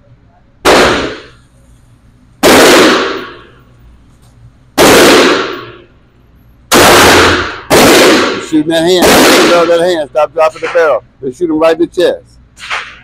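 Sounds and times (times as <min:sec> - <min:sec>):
shotgun shots echoing indoors: 0:00.6 - 0:01.5, 0:02.4 - 0:03.6, 0:04.8 - 0:06.0, 0:06.7 - 0:10.9, 0:12.6 - 0:13.0.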